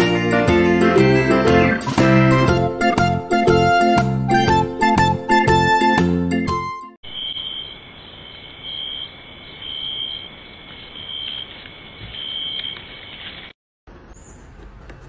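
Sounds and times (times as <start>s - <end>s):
guitar music: 0.0s - 6.7s
night insects calling: 7.0s - 13.5s.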